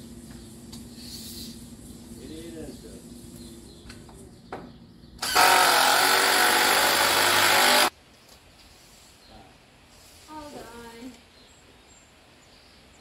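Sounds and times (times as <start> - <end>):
cordless drill driving screw into wood: 5.2 - 7.9.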